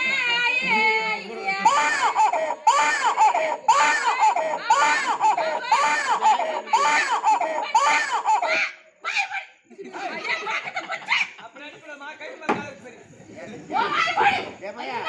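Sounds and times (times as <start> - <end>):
person imitating a crying baby: 1.6 - 8.6.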